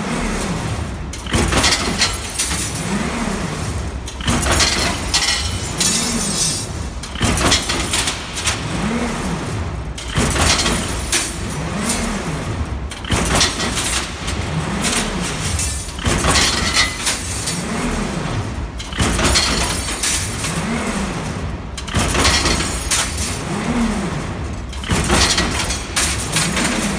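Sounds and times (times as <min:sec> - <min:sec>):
metal ring clattering into basket: 0:04.2 - 0:08.2.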